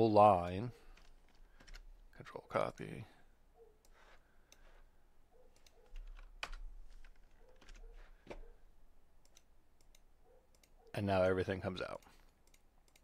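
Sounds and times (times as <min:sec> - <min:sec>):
keyboard typing clicks: 0:12.0 - 0:13.0.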